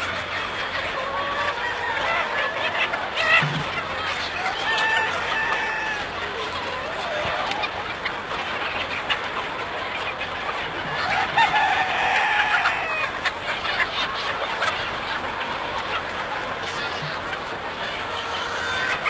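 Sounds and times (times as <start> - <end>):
chickens clucking: 0.0 - 19.0
rooster crowing: 11.1 - 13.0.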